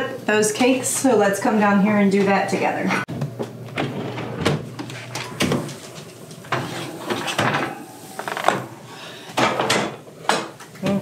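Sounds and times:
oven door opening: 0:03.7 - 0:10.6
baking sheet scraping oven rack: 0:03.8 - 0:10.1.

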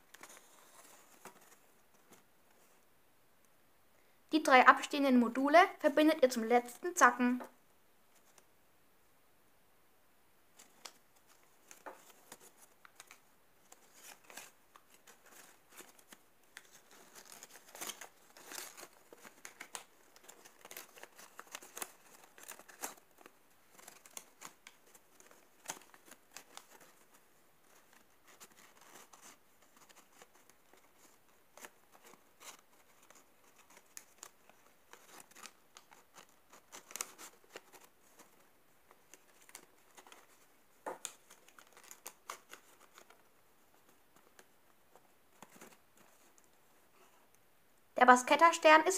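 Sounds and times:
paper rustling and crinkling: 0:00.0 - 0:02.8, 0:10.5 - 0:47.3
small paper clicks: 0:10.6 - 0:46.6.

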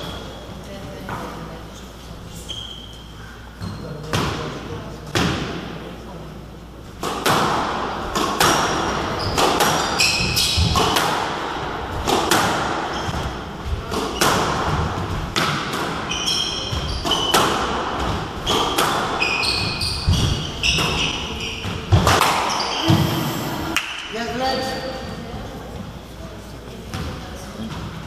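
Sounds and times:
squash ball knocks: 0:07.0 - 0:13.3, 0:13.9 - 0:16.1
shoes squeaking on wooden floor: 0:16.1 - 0:23.3.

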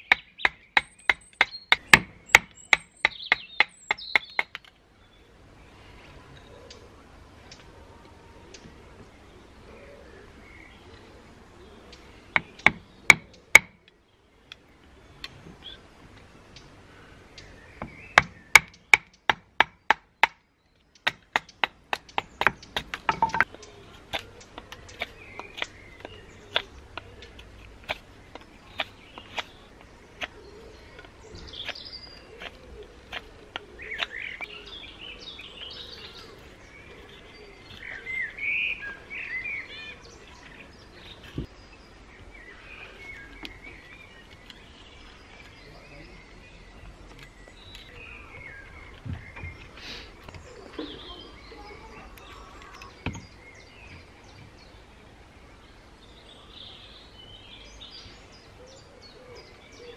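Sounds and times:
birds chirping: 0:00.0 - 0:59.9
wooden baton knocking on knife: 0:22.4 - 0:23.6.

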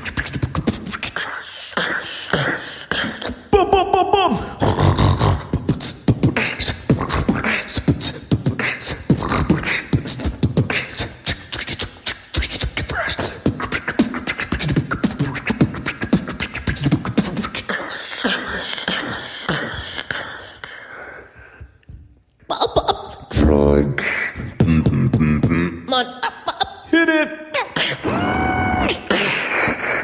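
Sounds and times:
person beatboxing: 0:00.0 - 0:20.8, 0:23.0 - 0:25.9.

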